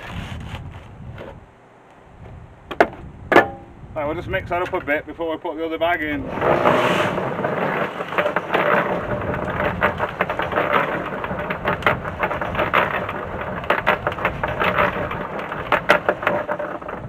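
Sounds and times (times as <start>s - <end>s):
gravel rattling in mixer drum: 6.0s - 17.0s
cement mixer motor hum: 6.1s - 17.0s.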